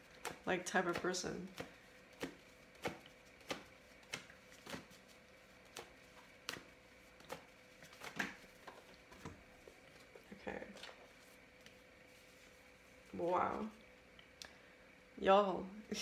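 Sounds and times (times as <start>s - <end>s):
cards being shuffled: 0.1s - 13.7s
card slaps and clicks: 0.2s - 4.9s, 5.7s - 7.4s.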